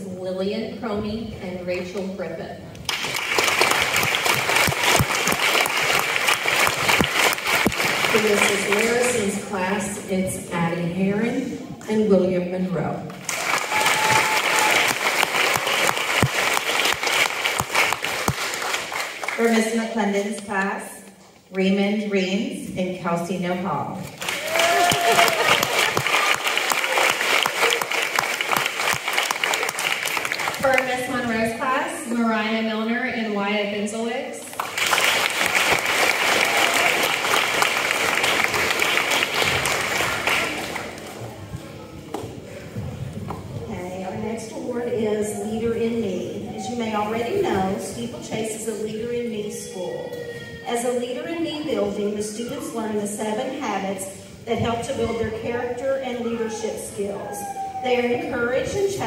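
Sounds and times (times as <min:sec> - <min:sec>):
audience applauding: 0:02.9 - 0:09.0, 0:13.2 - 0:19.4, 0:24.2 - 0:30.8, 0:34.6 - 0:41.4.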